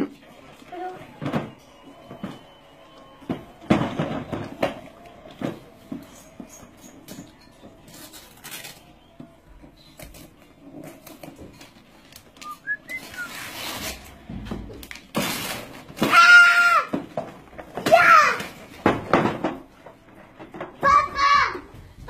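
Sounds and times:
wrapping paper rustling and tearing: 7.8s - 9.1s, 9.8s - 16.8s.

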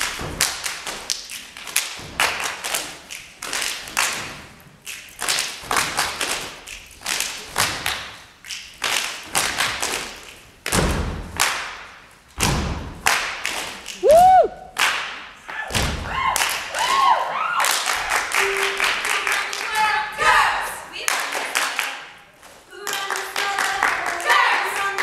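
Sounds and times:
rhythmic hand claps: 0.0s - 22.2s, 22.8s - 25.0s
heavy stomps: 9.3s - 13.4s, 15.3s - 16.4s
person whooping: 14.0s - 14.7s.

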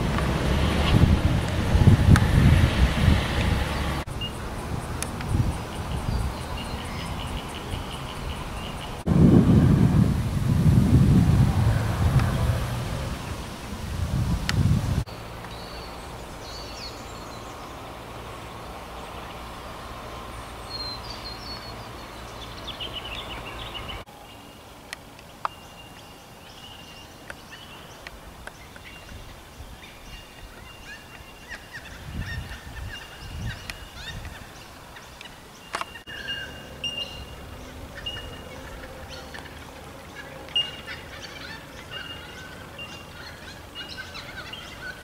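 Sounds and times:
wind rumble on microphone: 0.0s - 15.1s, 28.3s - 34.7s
birds calling and chirping: 0.8s - 9.1s, 15.0s - 45.0s.

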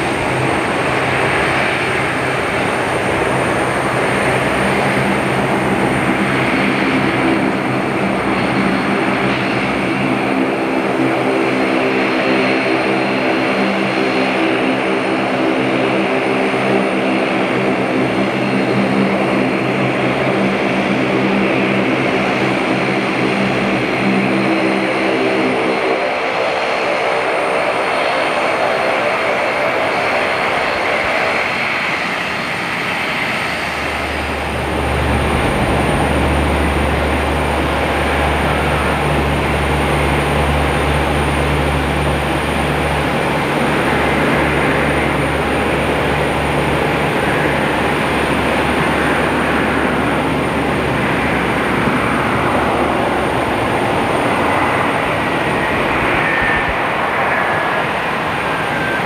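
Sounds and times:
jet engines rushing and rumbling: 0.0s - 59.0s
turboprop propeller tones: 0.0s - 59.0s
faint jet whine falling: 18.2s - 59.0s.

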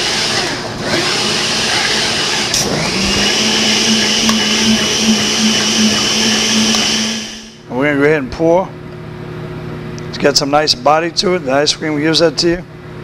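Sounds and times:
blender running: 0.0s - 7.6s.

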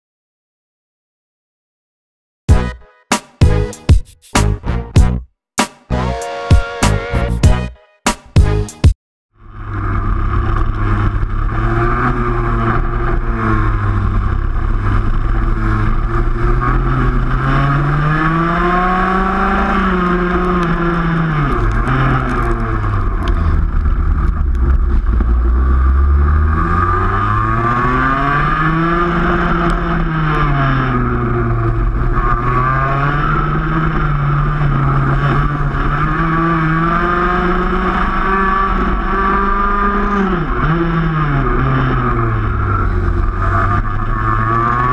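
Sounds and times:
kart engine running hard: 9.4s - 44.9s
other kart engines: 9.4s - 44.9s.

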